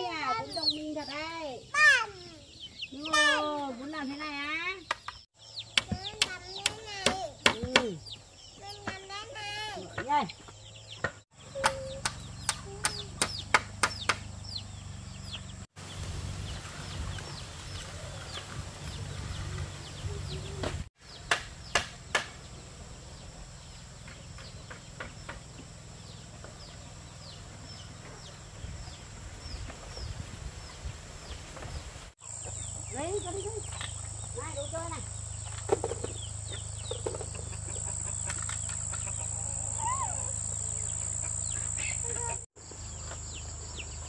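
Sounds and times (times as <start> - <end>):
chickens chirping: 0.0 - 21.8, 22.4 - 44.0
sharp knocks: 11.0 - 14.3, 21.2 - 22.4.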